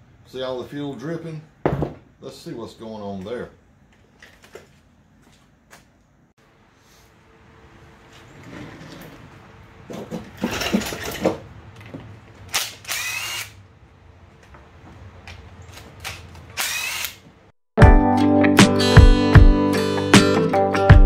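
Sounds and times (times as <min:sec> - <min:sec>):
faint steady background hum: 0:00.0 - 0:17.5
cordless drill motor whine: 0:12.8 - 0:13.6, 0:16.6 - 0:17.2.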